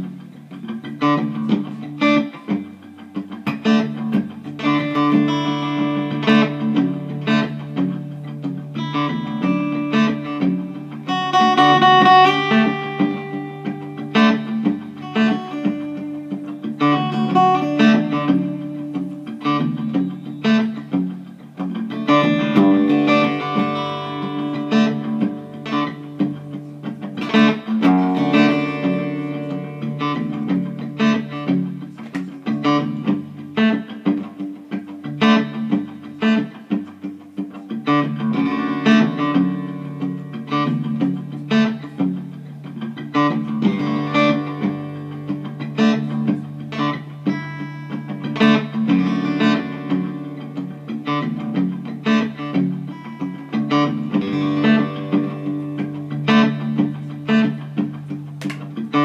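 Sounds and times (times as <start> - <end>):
acoustic guitar plucked notes: 0.0 - 59.0.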